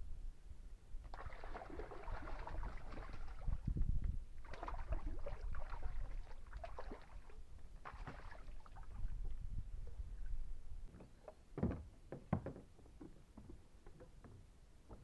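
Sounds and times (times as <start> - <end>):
fish thrashing and splashing water: 1.1 - 3.6, 4.4 - 9.0.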